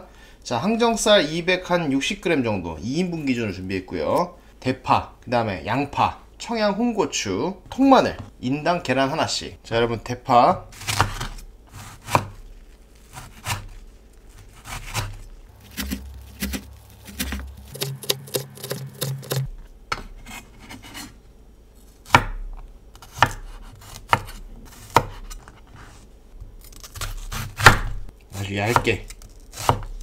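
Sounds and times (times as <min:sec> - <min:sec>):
sharp knife chops: 0:10.8 - 0:12.4, 0:13.1 - 0:13.7, 0:14.5 - 0:19.5, 0:23.0 - 0:25.3, 0:27.0 - 0:28.0.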